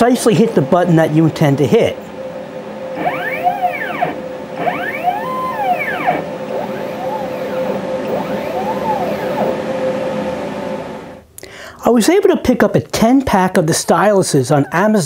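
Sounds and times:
steady hum: 0.0 - 12.6
stepper motors whining: 0.6 - 11.2.

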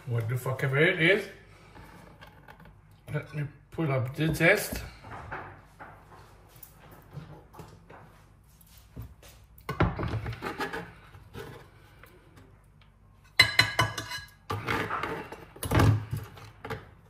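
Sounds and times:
utensils and bowl clattering: 13.3 - 15.4.

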